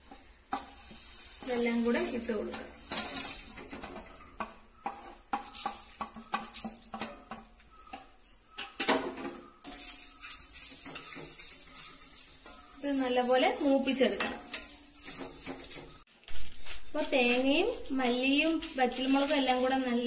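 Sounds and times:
faint sizzle: 0.0 - 16.1
spoon scraping in a pan: 0.0 - 20.0
spoon knocking against pan: 3.6 - 10.0.

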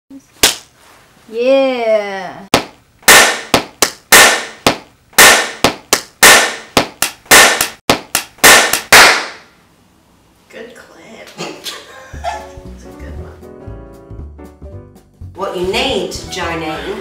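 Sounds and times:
sharp hand claps: 2.5 - 9.4.

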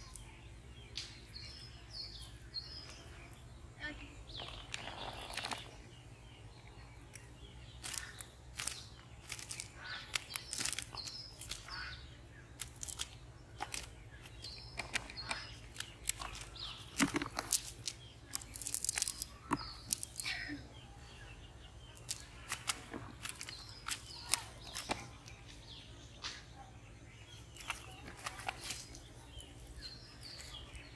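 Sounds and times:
birds chirping: 0.0 - 30.9
sharp clicks: 12.6 - 20.3, 22.0 - 25.1.

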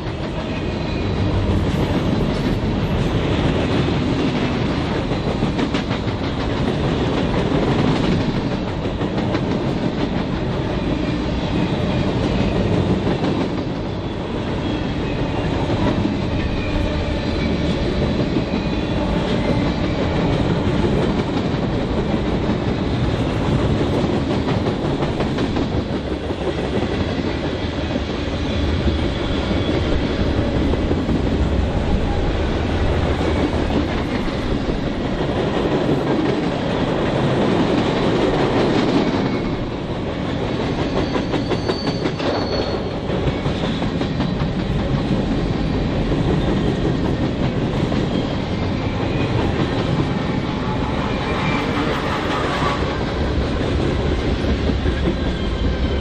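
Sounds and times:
freight train rumbling past: 0.0 - 56.0
faint high wheel squeals: 40.8 - 43.0.

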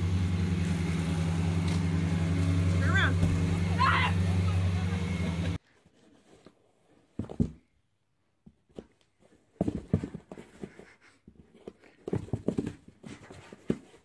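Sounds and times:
pet thumping cardboard box: 7.1 - 7.7, 8.7 - 14.0.

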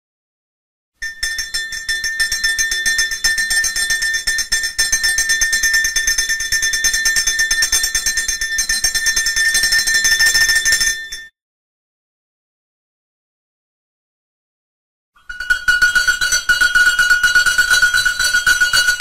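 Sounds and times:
small bell clanging rapidly: 1.0 - 11.3, 15.2 - 19.0.

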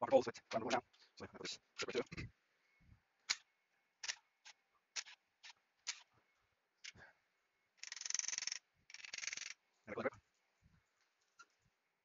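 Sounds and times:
hand ratchet clicking: 7.8 - 9.6.

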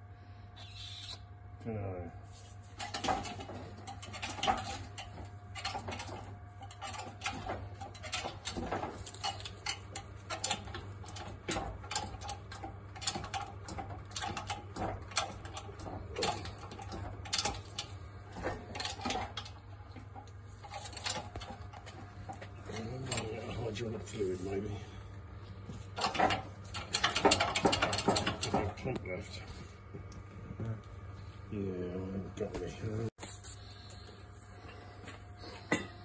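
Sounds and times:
steady low hum: 0.0 - 36.0
hydraulic press clicks and knocks: 2.8 - 24.2, 25.8 - 29.1.

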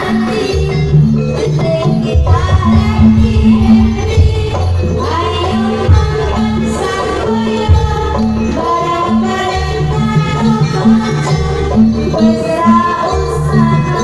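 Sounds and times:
folk percussion beat: 0.0 - 14.0
bending melody line: 1.6 - 7.2.

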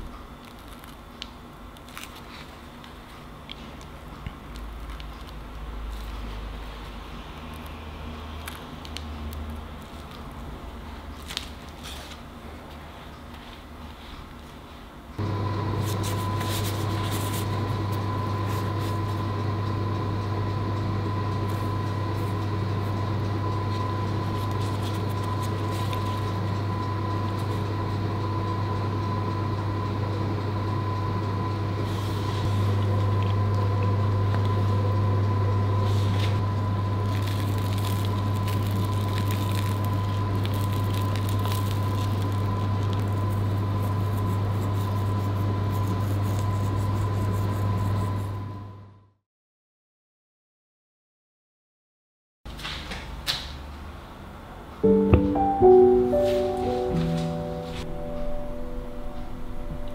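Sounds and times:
low machine hum: 0.0 - 49.1, 54.6 - 59.9
thin high tone: 54.8 - 59.9.

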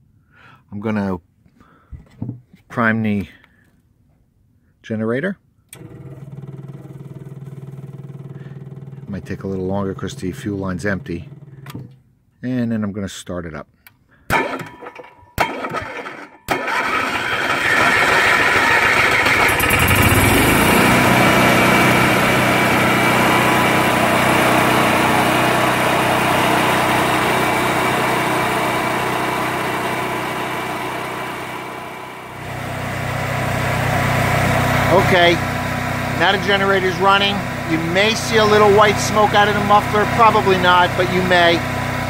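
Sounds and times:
generator engine starting: 5.7 - 12.0, 14.3 - 42.0
engine running steadily: 5.8 - 12.0, 16.7 - 42.0
starter cranking: 14.3 - 21.1.

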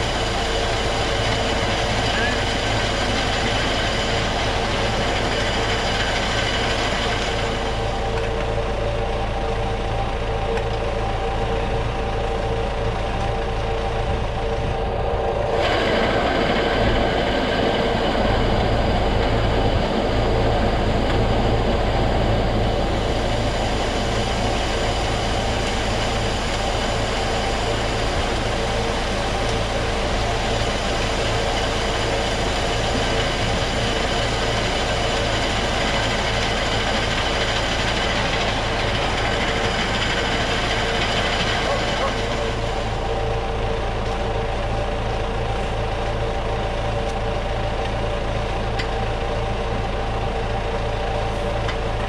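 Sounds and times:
grain auger humming: 0.0 - 52.0.

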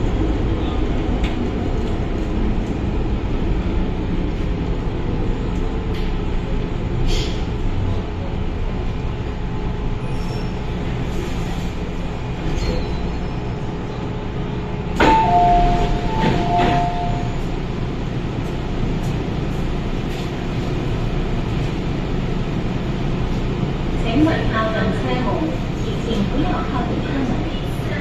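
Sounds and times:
low rumble of train equipment: 0.0 - 28.0
train doors opening with a clang: 12.4 - 13.4, 14.9 - 17.6
two-note tone: 15.0 - 17.3.

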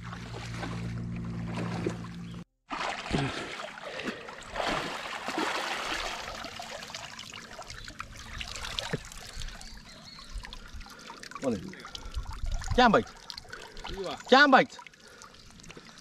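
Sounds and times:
water trickling and splashing: 0.0 - 16.0
water rushing: 2.7 - 9.8.

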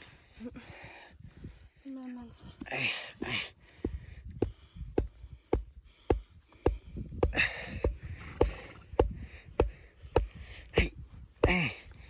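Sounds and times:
hammer striking stake: 9.0 - 11.7.

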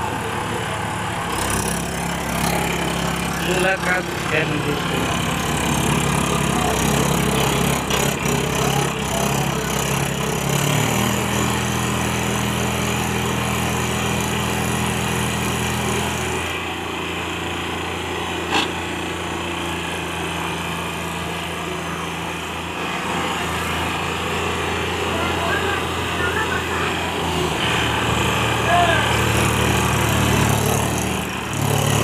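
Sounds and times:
tractor engines under load: 0.0 - 32.0.

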